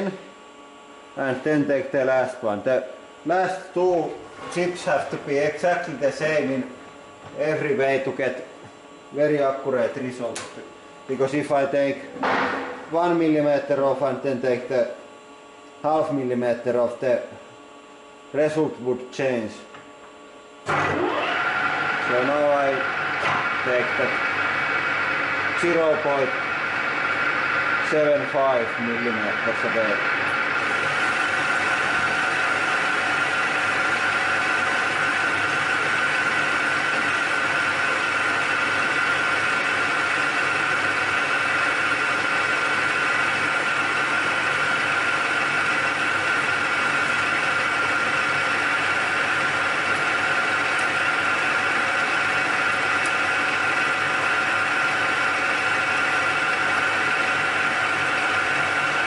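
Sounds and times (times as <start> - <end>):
metal lathe running: 20.7 - 59.0.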